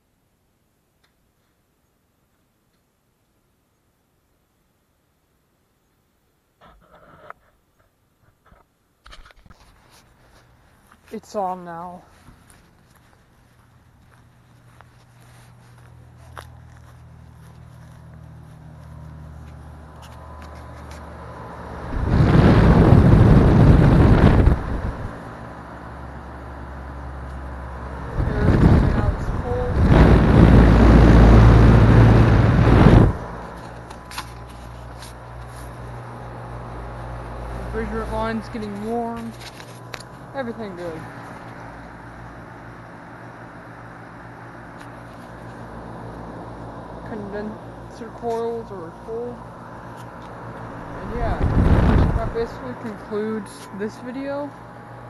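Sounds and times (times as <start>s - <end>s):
heat pump humming: 10.1s - 55.0s
condenser fan air blast: 20.6s - 39.2s, 40.3s - 55.0s.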